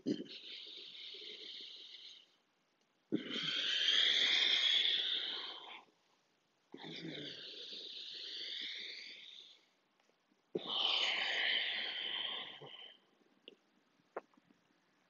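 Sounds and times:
deep throat breathing: 0.0s - 2.4s, 6.8s - 9.6s.

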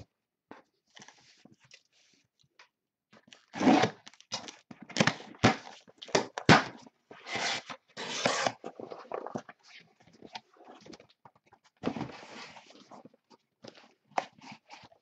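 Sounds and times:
cardboard scraping and tearing: 3.5s - 4.2s, 7.2s - 9.4s.

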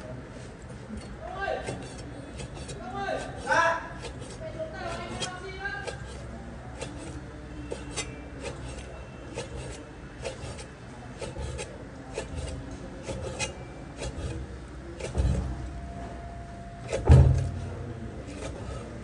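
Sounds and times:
cleaver slicing meat: 1.6s - 15.5s, 18.3s - 18.9s
blade tapping cutting board: 6.8s - 8.8s, 9.4s - 14.3s
heavy thump: 16.9s - 17.8s.

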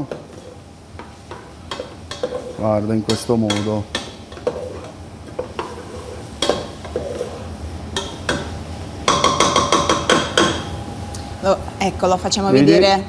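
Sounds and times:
spoon stirring vegetables: 0.0s - 9.2s
spoon knocking against pan: 1.0s - 2.5s, 6.4s - 7.3s, 8.0s - 10.7s.

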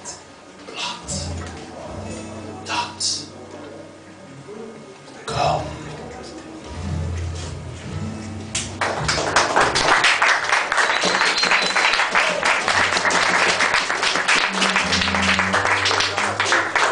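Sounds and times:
low held music notes: 0.8s - 10.0s, 12.4s - 16.9s
audience applauding: 8.8s - 16.9s.

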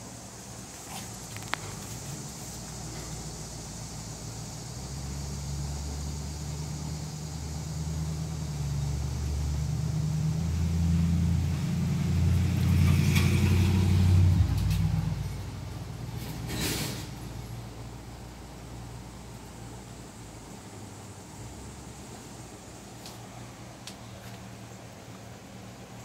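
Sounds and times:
low engine rumble: 0.0s - 26.0s
short hiss: 16.2s - 17.4s.

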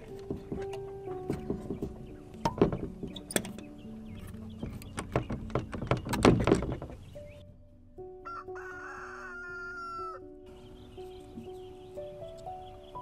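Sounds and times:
sharp clicks and knocks: 0.0s - 7.2s
soft background music: 0.0s - 13.0s
rooster crowing: 8.2s - 10.3s.

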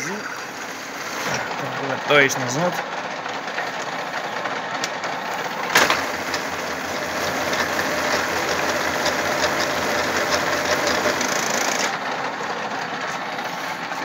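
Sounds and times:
metal milling machine running: 0.0s - 14.0s
sharp clunk: 5.7s - 6.1s.

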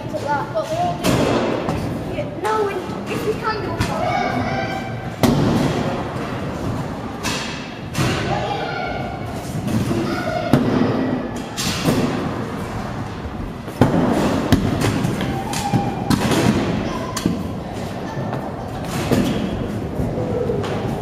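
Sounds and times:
children's voices: 0.0s - 5.2s, 7.9s - 11.8s, 15.2s - 21.0s.

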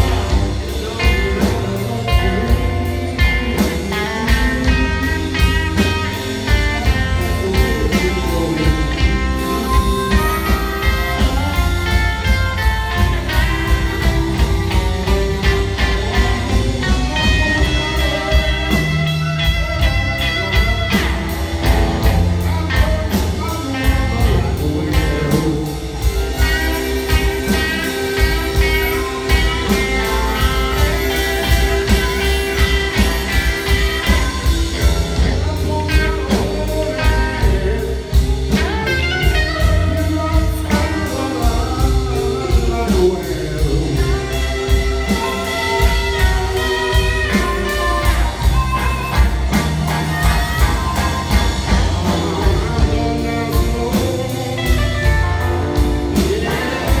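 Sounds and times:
drums: 0.0s - 57.0s
electric guitar: 0.0s - 57.0s
long held melody line: 0.0s - 57.0s
piano: 0.0s - 57.0s
upright bass: 0.0s - 57.0s.

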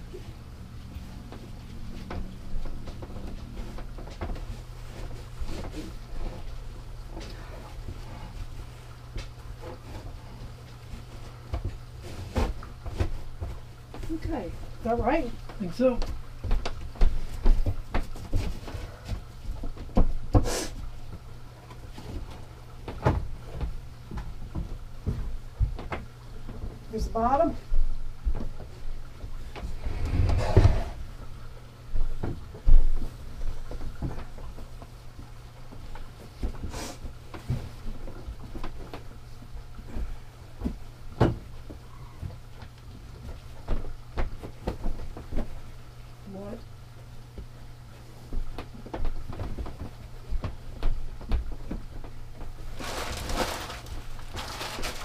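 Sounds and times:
steady low hum: 0.0s - 55.0s
fabric rustling: 52.6s - 55.0s.

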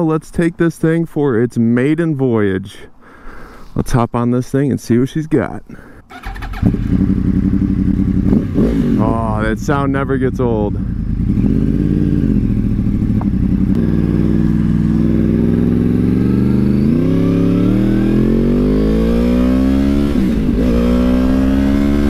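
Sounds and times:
motorcycle engine accelerating: 6.1s - 22.0s.

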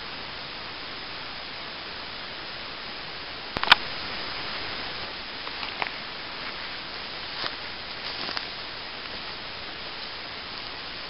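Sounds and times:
stream rushing: 0.0s - 11.0s
footsteps through dry leaves: 5.4s - 11.0s.

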